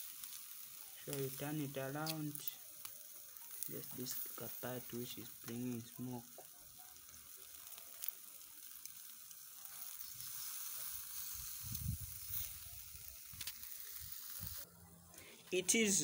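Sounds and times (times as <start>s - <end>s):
steak sizzling on a grill: 0.0s - 14.7s.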